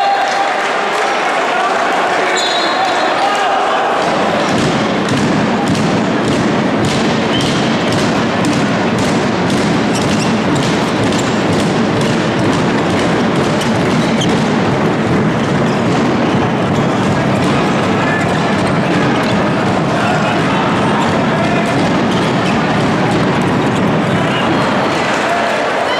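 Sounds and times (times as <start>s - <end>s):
crowd voices din: 0.0s - 25.9s
rhythmic thumps: 4.0s - 25.6s.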